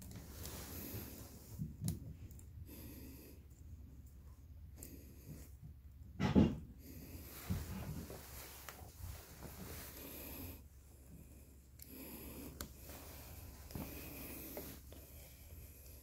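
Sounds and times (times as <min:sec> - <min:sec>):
soft handling rustling: 0:00.0 - 0:02.4, 0:07.0 - 0:16.0
low steady hum: 0:00.0 - 0:16.0.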